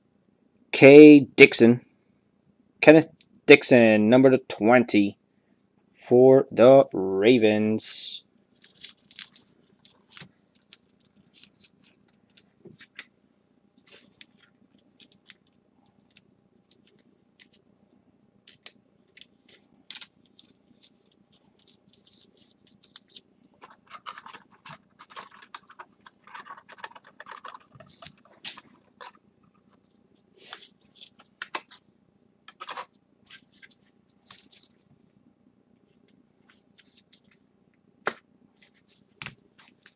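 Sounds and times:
rustling of cards: 8.5s - 13.1s, 13.8s - 17.6s, 18.5s - 31.8s, 32.5s - 35.1s, 36.0s - 37.4s, 38.1s - 39.9s.

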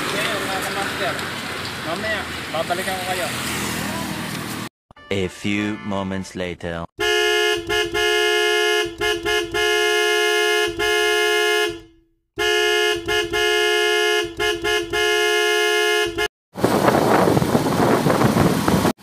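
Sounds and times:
car horn honking: 7.0s - 16.3s.

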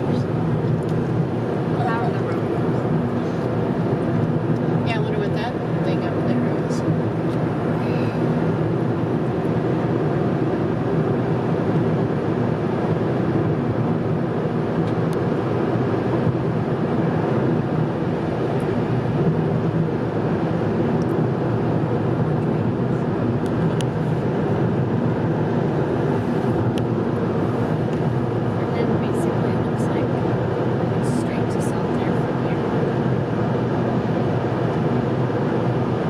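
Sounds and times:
car driving on highway: 0.0s - 36.0s.

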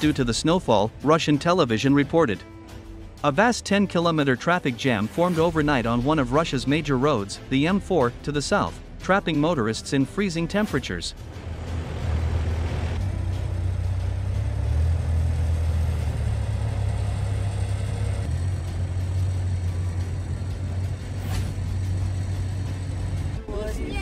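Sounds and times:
diesel engines rumbling: 9.2s - 24.0s.

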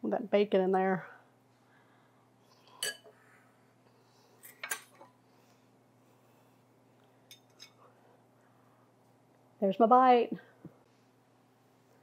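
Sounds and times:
metal utensils clinking on dishes: 2.7s - 3.1s, 4.4s - 5.1s.

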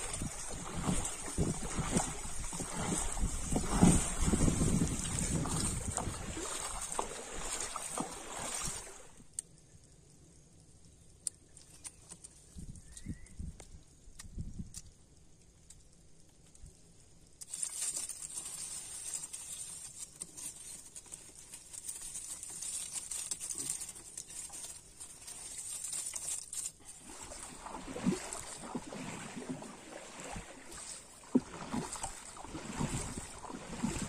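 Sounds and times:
paddle splashing in water: 0.0s - 9.2s, 26.1s - 34.0s
shrimp rustling and pattering: 0.0s - 9.2s, 17.4s - 34.0s.

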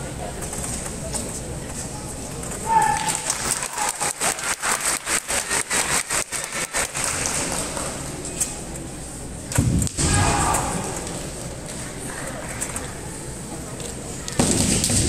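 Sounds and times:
fencers shouting: 2.6s - 4.1s, 10.0s - 11.1s.

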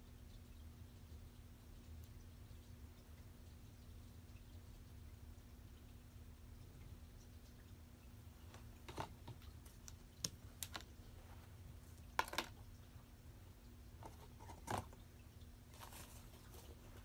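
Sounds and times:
cat playing with toys and packaging: 12.0s - 12.6s, 14.0s - 15.0s.

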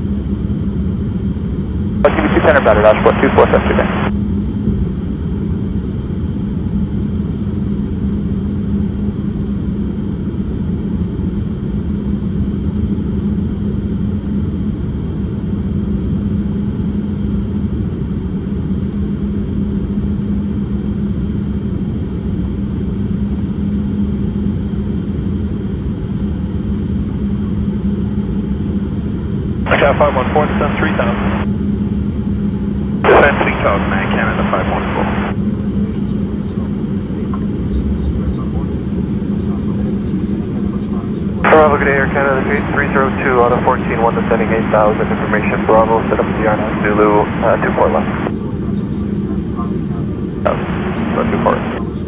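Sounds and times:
aircraft engines rumbling: 0.0s - 52.0s
steady hum: 1.8s - 4.8s, 29.6s - 36.6s, 37.2s - 49.1s, 49.7s - 52.0s.

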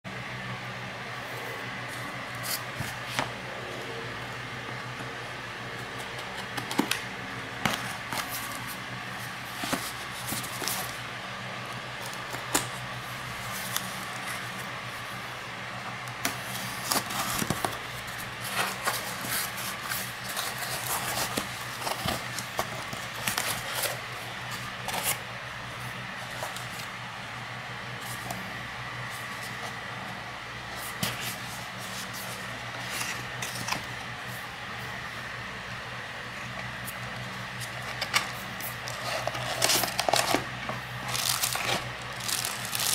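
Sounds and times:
steady background hum: 0.0s - 42.9s
cardboard scrapes and rustles: 16.3s - 25.2s, 38.6s - 42.9s.

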